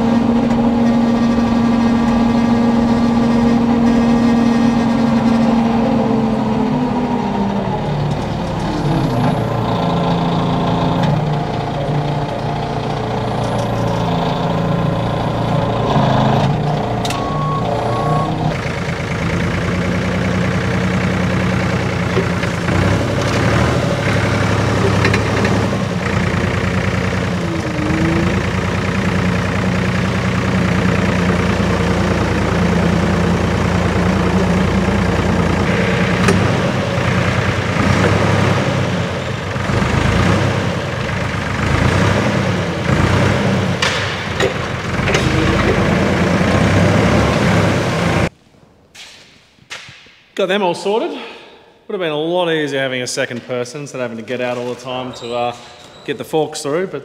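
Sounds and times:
forklift engine running: 0.0 - 48.4
short beeps: 17.0 - 18.6.

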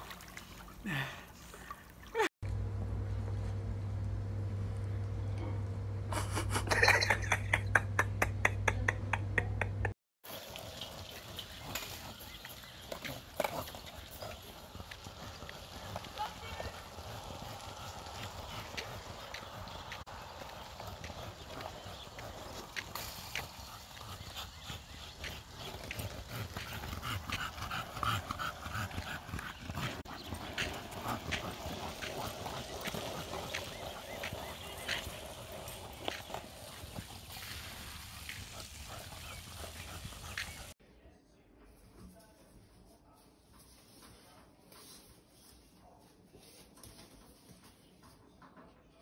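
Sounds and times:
steady low hum: 2.4 - 8.4
skateboard rolling on asphalt: 10.3 - 40.7
dog panting: 12.9 - 40.8.

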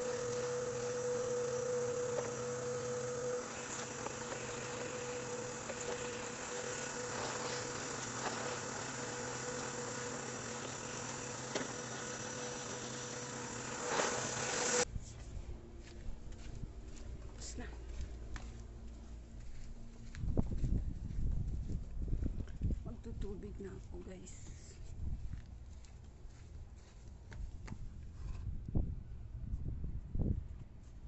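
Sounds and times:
vacuum cleaner running with whine: 0.0 - 14.9.

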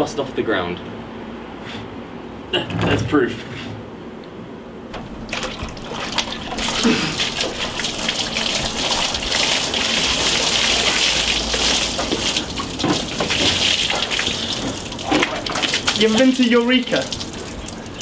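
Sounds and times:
water pouring into tub: 5.0 - 18.0.

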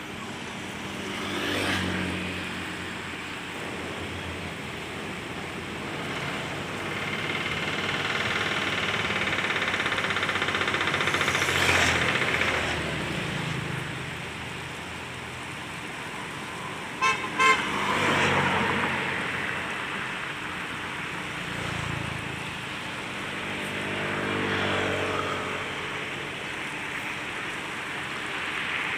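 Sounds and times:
passing road traffic: 0.0 - 28.9
vehicle horn beeps: 17.0 - 18.5.

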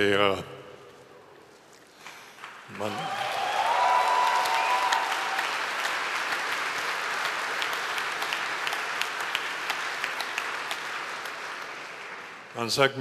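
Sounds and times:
audience applauding: 2.2 - 12.8.

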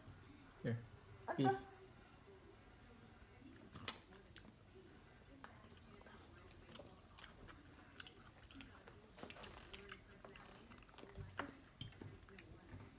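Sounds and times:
baby chewing food: 3.4 - 12.9.

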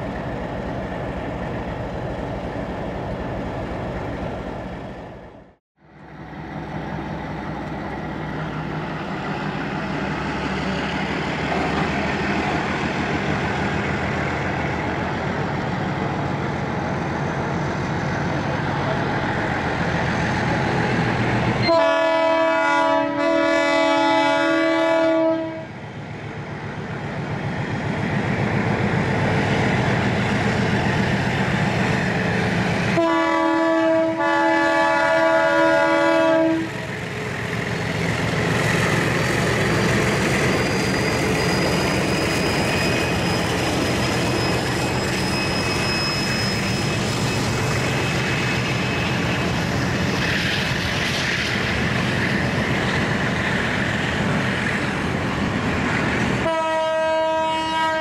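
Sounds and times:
diesel locomotive engine running: 0.0 - 58.0
train wheels rumbling: 0.0 - 58.0
locomotive horn chord: 21.6 - 25.7, 33.0 - 36.8, 56.4 - 58.0.

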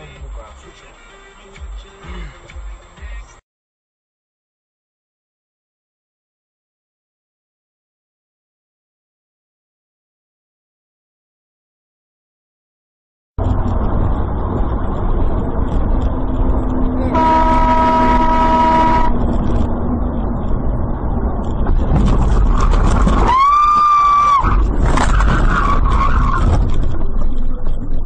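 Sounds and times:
car road and engine noise: 0.0 - 3.4, 13.4 - 28.0
car horn: 17.1 - 19.3.

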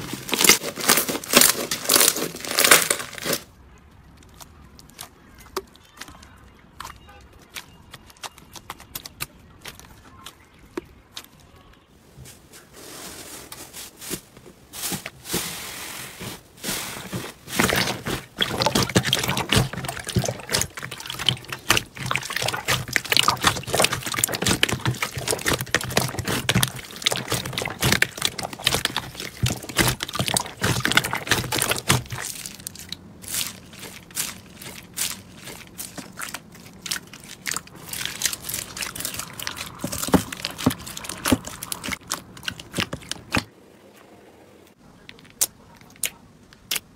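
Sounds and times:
slime squelching and popping: 4.0 - 11.4, 16.6 - 43.5.

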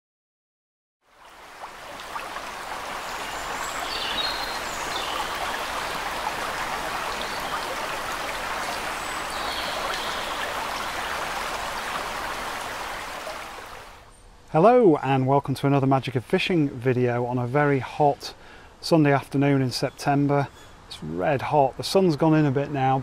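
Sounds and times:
running water rushing: 1.0 - 14.0.

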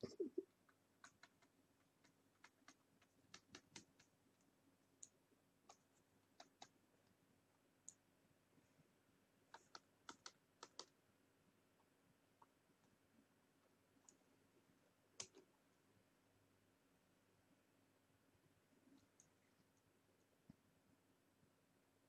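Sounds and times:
faint steady hum: 0.0 - 22.0
computer mouse clicks: 5.0 - 6.8, 9.5 - 11.0, 15.2 - 15.5.

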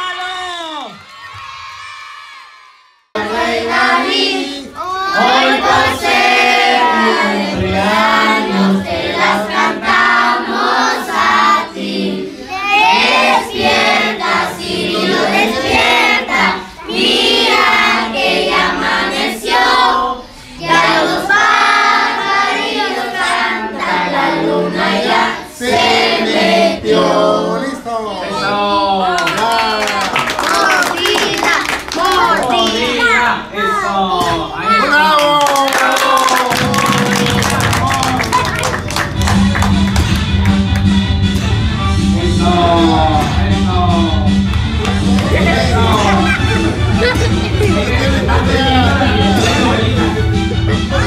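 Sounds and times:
children and adults singing together: 3.2 - 28.7, 30.4 - 33.1, 42.2 - 51.0.

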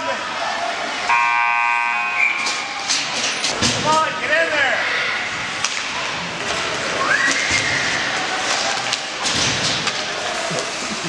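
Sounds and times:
skates scraping ice: 5.2 - 11.0
hockey sticks clicking: 5.5 - 11.0.

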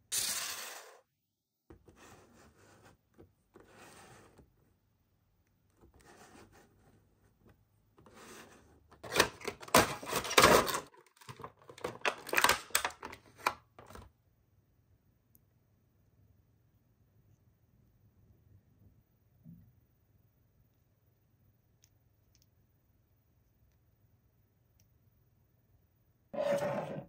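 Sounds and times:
plastic tray crinkling: 9.0 - 14.0.

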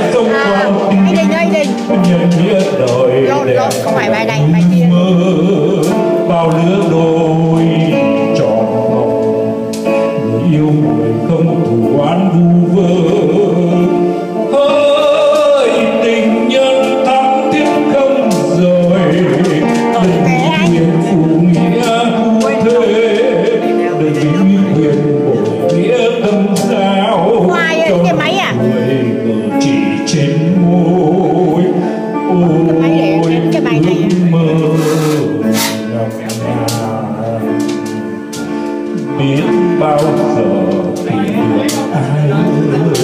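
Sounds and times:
electronic keyboard: 0.0 - 43.0
man singing into microphone: 0.0 - 43.0.

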